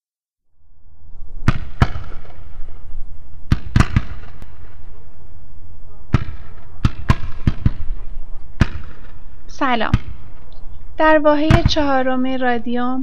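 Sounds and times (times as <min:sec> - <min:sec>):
steady low rumble: 0:00.8 - 0:12.7
sharp irregular bangs: 0:01.5 - 0:02.5, 0:03.5 - 0:04.9, 0:06.1 - 0:10.5.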